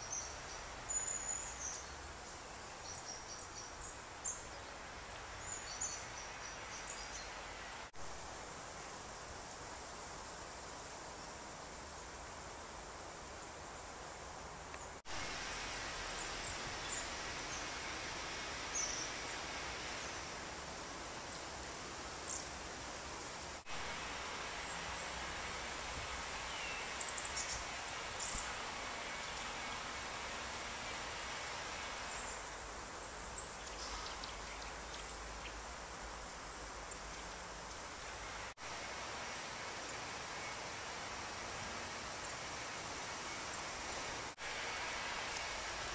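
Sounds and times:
steady outdoor hiss: 0.0s - 45.9s
faint bird chirps: 33.3s - 35.6s.

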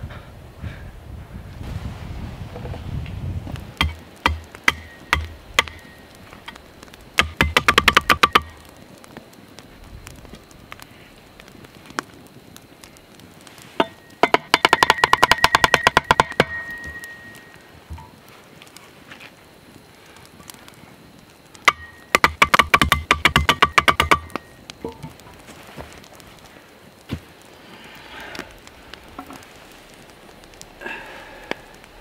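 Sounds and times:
hatchet striking wooden stake: 3.8s - 5.8s, 7.2s - 8.5s, 13.8s - 17.0s, 21.6s - 24.4s.

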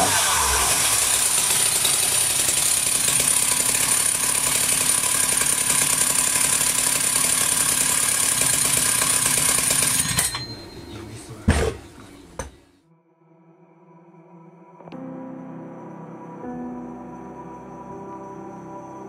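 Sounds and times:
chainsaw idling: 0.0s - 10.5s.

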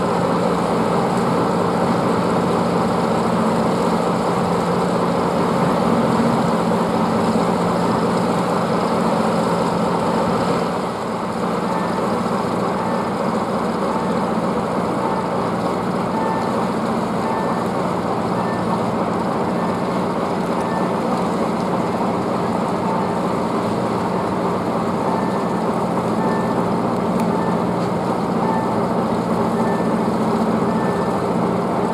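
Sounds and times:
heavy machinery drone: 0.0s - 31.9s
electronic warning beep: 16.1s - 16.6s, 17.2s - 17.7s, 20.6s - 21.1s, 25.1s - 27.8s, 28.4s - 28.8s, 29.4s - 30.0s, 30.6s - 31.2s.

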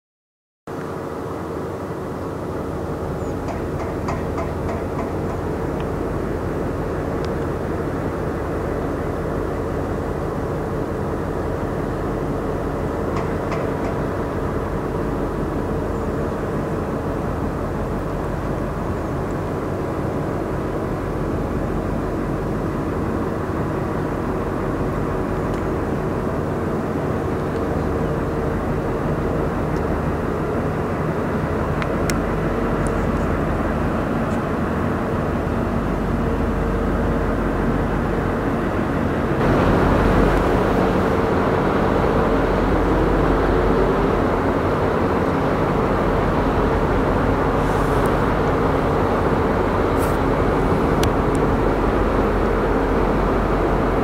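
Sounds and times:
ship diesel engines droning: 0.7s - 54.0s
loud rushing noise: 39.2s - 45.1s.

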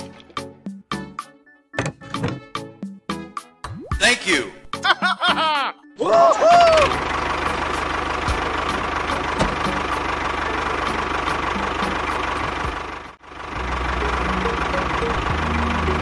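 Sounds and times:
tractor engine knocking: 6.7s - 16.0s.

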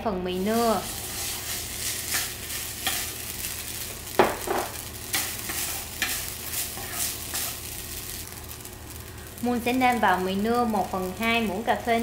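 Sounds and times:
noodles sizzling in oil: 0.3s - 12.0s
chopsticks stirring in pan: 0.8s - 3.8s, 5.0s - 8.2s.

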